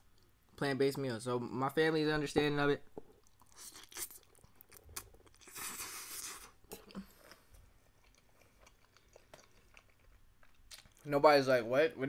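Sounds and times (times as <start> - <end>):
faint chewing: 3.0 - 11.1.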